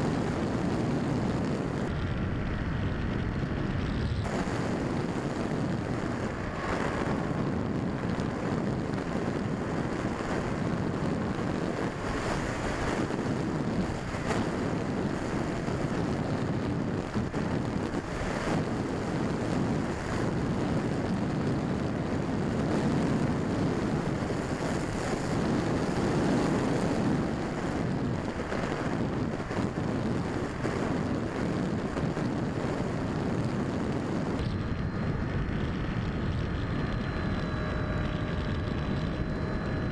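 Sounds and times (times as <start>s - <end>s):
wind rushing over microphone: 0.0s - 39.9s.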